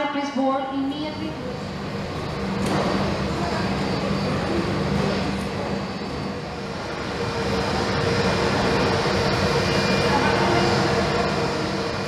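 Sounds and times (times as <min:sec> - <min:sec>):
jet engines roaring: 0:00.7 - 0:12.0.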